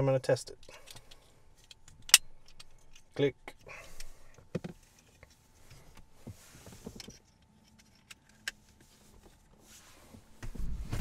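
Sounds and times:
clicks and knocks of car parts: 4.0 - 5.1.

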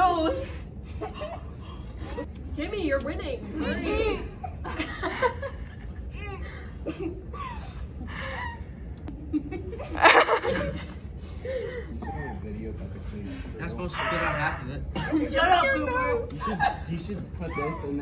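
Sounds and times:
girls laughing and giggling: 0.0 - 2.3, 3.6 - 12.4
steady low hum: 0.0 - 18.0.

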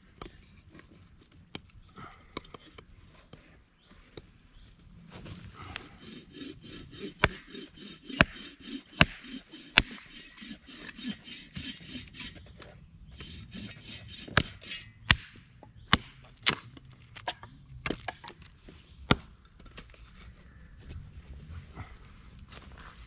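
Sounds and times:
hatchet chopping wood: 5.8 - 12.4, 13.2 - 18.3, 19.1 - 19.4.

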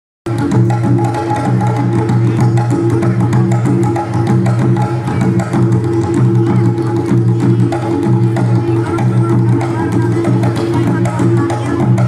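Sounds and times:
drums in quick rhythm: 0.3 - 12.0.

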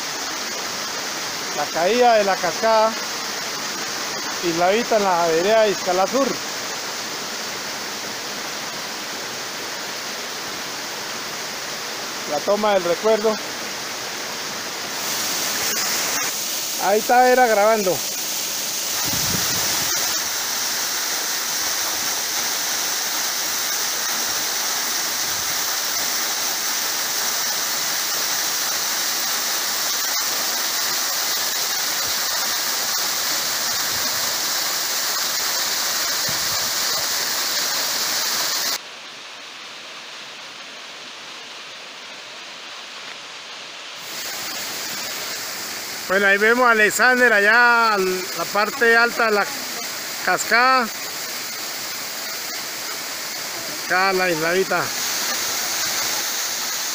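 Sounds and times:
waterfall rushing onto rock: 0.0 - 38.9, 41.1 - 56.9.

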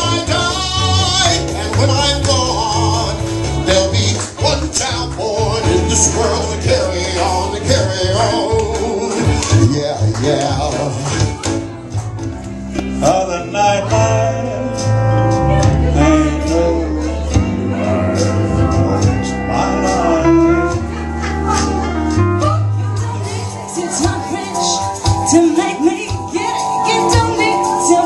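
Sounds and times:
man singing into microphone: 0.0 - 11.2, 12.8 - 20.9
country backing track: 0.0 - 28.0.

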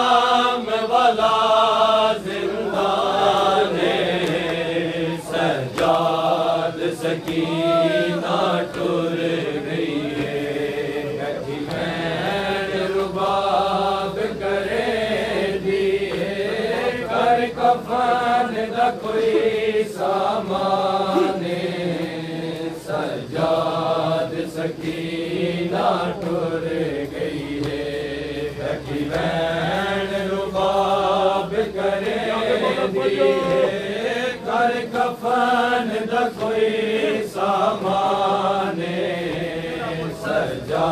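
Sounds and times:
men chanting a lament: 0.0 - 40.9
hand slaps on chest: 4.2 - 4.6, 5.7 - 6.0.

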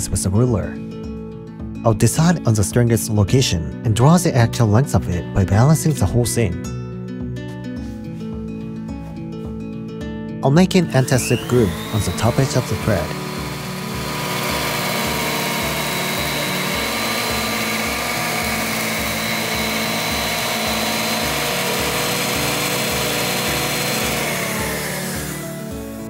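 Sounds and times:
circular saw cutting wood: 10.7 - 26.0.

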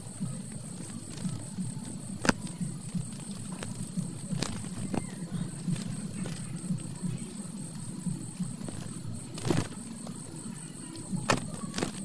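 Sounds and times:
high-pitched insect trill: 0.0 - 12.0
low uneven rustle: 0.0 - 12.0.

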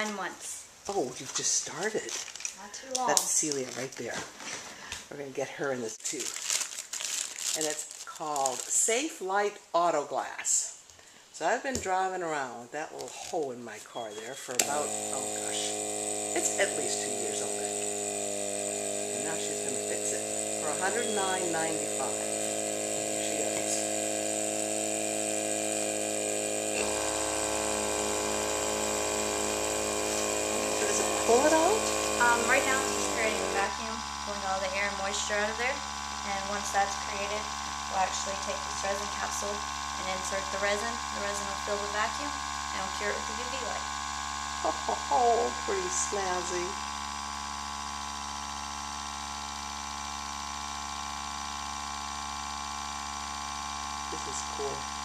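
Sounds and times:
air compressor humming: 14.0 - 55.0.

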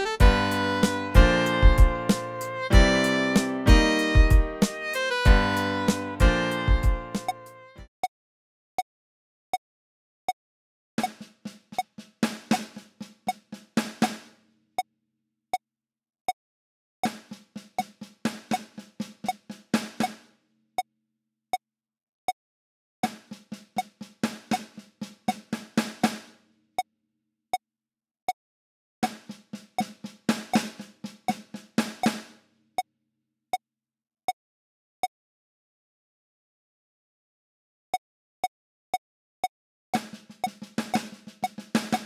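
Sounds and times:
electronic snare drum roll: 0.2 - 7.6, 11.0 - 14.3, 17.0 - 20.2, 23.0 - 26.3, 29.0 - 32.3, 40.0 - 42.0
metronome clicking: 0.8 - 7.6.

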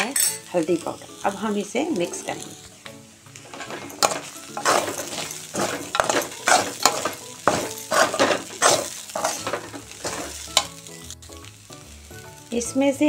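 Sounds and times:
food frying sizzle: 0.0 - 13.0
metal spatula scraping pan: 3.4 - 10.8.

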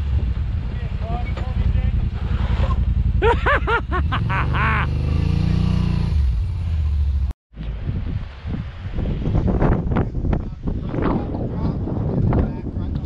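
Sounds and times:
utility vehicle engine running low: 0.0 - 7.3.

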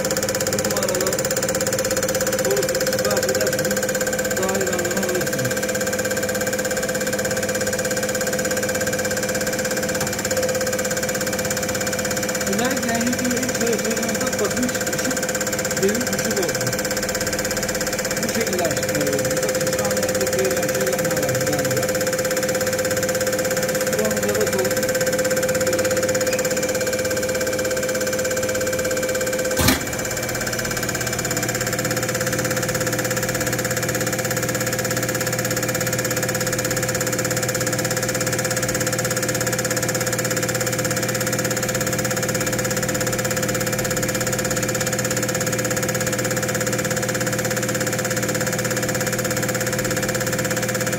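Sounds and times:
test bench machine hum: 0.0 - 50.9
injectors spraying: 0.4 - 5.8, 12.2 - 27.4
sharp click: 29.5 - 30.8.

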